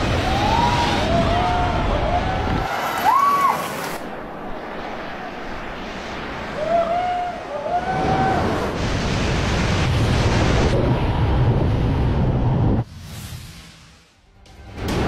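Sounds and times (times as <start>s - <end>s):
spectator whooping: 0.2s - 3.9s, 6.5s - 8.6s.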